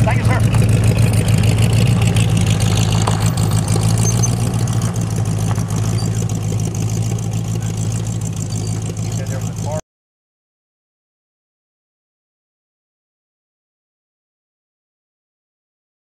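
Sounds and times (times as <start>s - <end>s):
car engine idling: 0.0s - 9.8s.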